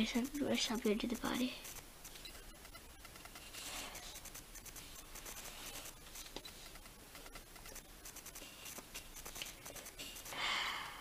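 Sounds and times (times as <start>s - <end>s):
pencil scratching on paper: 3.2s - 10.3s.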